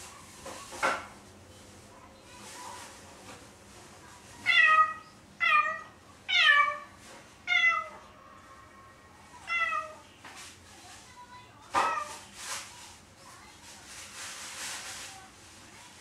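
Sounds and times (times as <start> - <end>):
cat meowing: 4.4 - 6.9, 7.5 - 8.0, 9.4 - 10.0.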